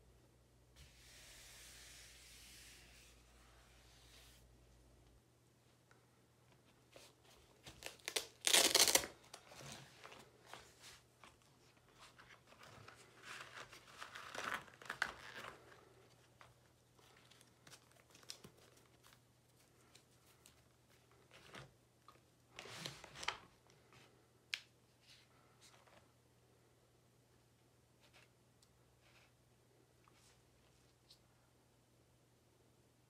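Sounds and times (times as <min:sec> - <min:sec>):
crinkling and tearing: 0:07.6 - 0:10.4, 0:11.2 - 0:21.7.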